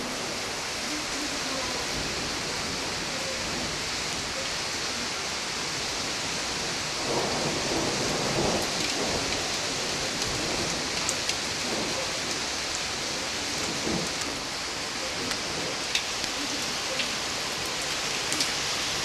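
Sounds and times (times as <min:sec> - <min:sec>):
steady rain hissing: 0:00.0 - 0:19.0
thunder rumbling: 0:06.3 - 0:19.0.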